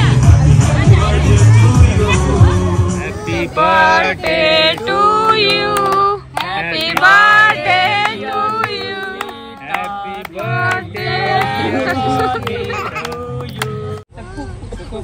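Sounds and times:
woman singing: 0:03.2 - 0:09.6, 0:10.4 - 0:13.0.

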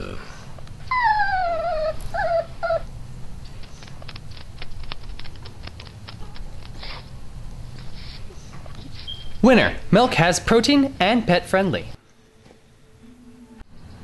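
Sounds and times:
small dog whining: 0:00.9 - 0:02.9.

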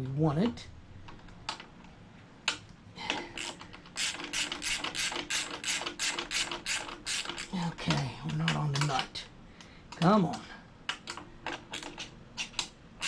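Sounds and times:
ratchet wrench clicking: 0:03.4 - 0:07.5.

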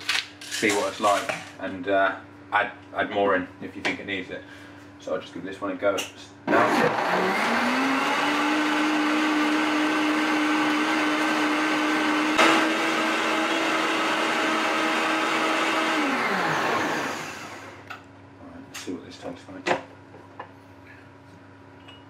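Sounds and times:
blender running: 0:06.5 - 0:17.9.

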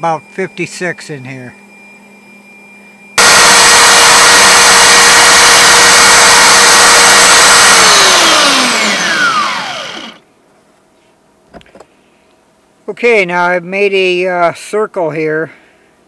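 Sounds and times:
electric sander whining: 0:03.2 - 0:10.2.

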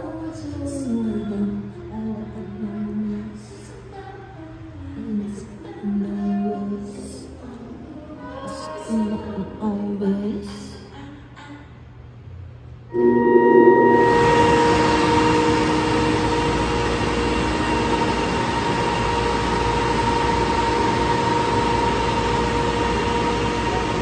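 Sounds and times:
held high tone: 0:12.9 - 0:24.0
rushing noise drone: 0:12.9 - 0:24.0.

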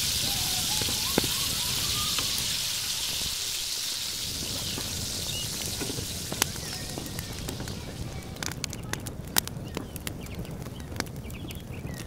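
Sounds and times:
meat and onions sizzling in a pan: 0:00.0 - 0:08.5.

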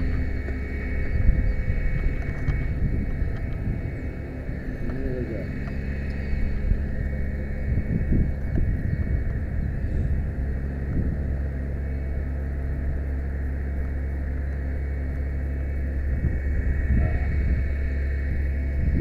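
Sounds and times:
faint steady whine: 0:00.0 - 0:19.0
truck engine and hydraulics humming: 0:00.0 - 0:19.0
wind buffeting microphone: 0:00.0 - 0:19.0.

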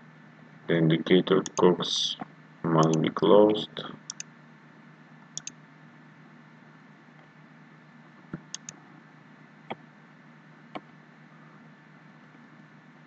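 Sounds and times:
steady low hum: 0:00.0 - 0:13.0
computer mouse clicking: 0:04.1 - 0:04.3, 0:05.4 - 0:05.6, 0:08.4 - 0:08.8.

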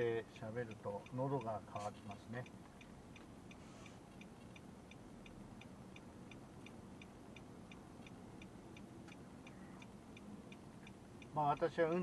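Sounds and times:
turn signal ticking: 0:00.0 - 0:12.0.

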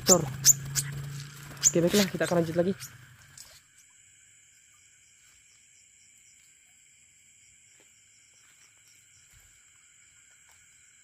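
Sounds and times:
night insects droning: 0:00.0 - 0:11.0.

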